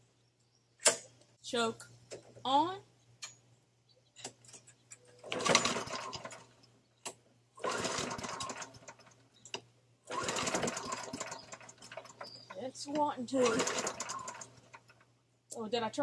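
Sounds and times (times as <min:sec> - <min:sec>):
mower recoil starter cranking: 0:05.2 - 0:06.5, 0:07.6 - 0:09.2, 0:10.1 - 0:15.0.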